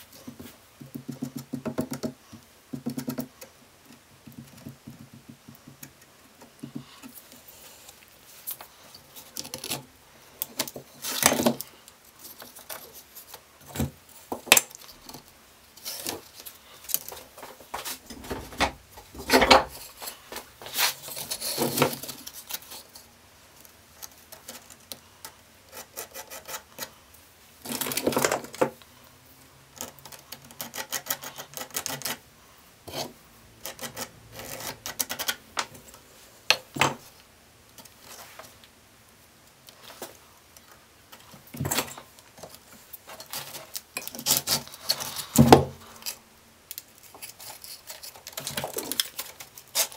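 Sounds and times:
tools and wood knocking: 0.2s - 7.1s, 17.0s - 20.5s.

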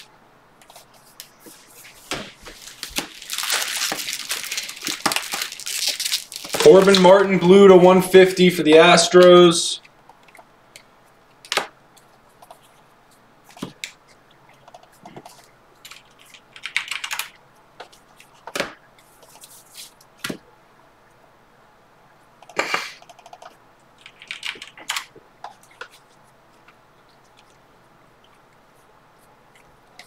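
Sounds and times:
cards riffling: 0.6s - 7.1s.

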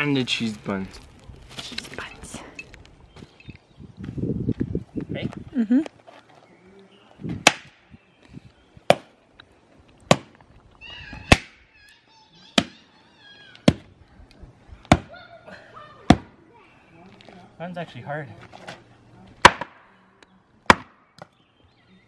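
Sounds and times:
axe splitting firewood: 7.4s - 7.7s, 10.1s - 10.4s, 14.9s - 15.1s, 19.4s - 19.8s, 20.6s - 21.3s
high chirping calls: 10.8s - 14.2s.

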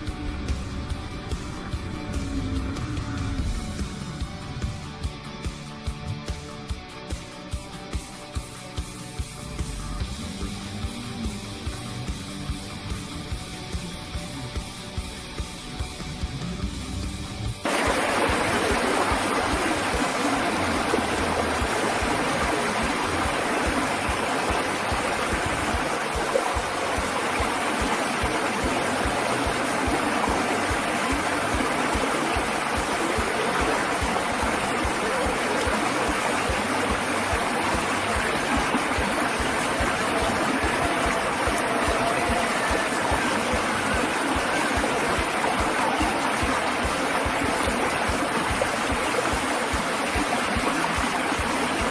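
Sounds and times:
water rushing over rocks: 17.6s - 51.9s.

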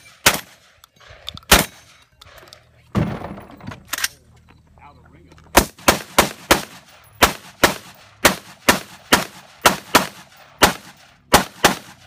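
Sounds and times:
rifle shots: 0.0s - 0.8s, 1.5s - 2.0s, 5.5s - 12.0s.

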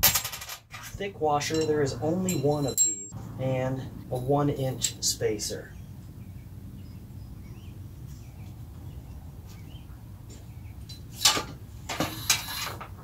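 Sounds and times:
sharp metal clank: 0.0s - 0.8s.

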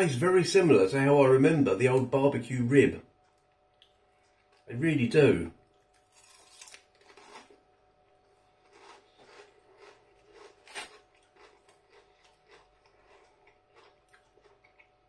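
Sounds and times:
crisps being chewed: 5.7s - 15.0s.

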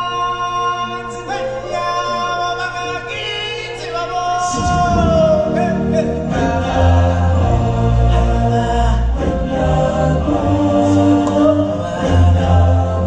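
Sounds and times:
stage show music with singers: 0.0s - 13.0s
deep bass part: 4.5s - 13.0s.

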